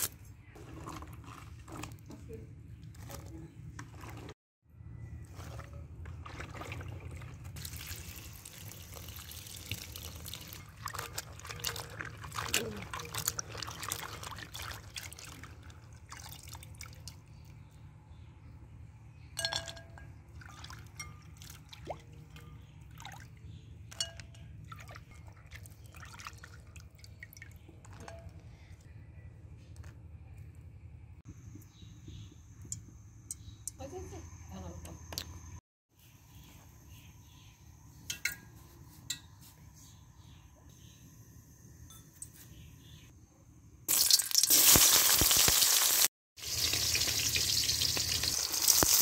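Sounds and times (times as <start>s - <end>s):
water sloshing and splashing: 0.6s - 4.4s, 5.2s - 17.3s, 20.3s - 28.3s.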